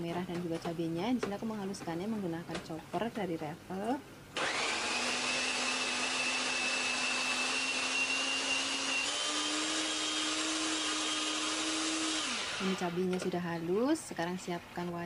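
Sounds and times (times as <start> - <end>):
electric food chopper whining: 4.4 - 13.0.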